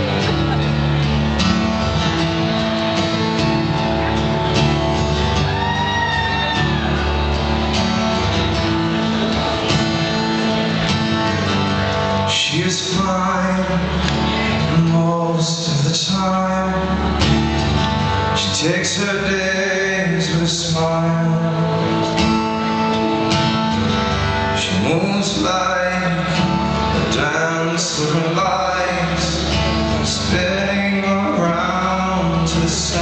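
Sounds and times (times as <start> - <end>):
acoustic guitar strumming: 0.0 - 33.0
man singing: 12.0 - 22.2, 24.5 - 33.0.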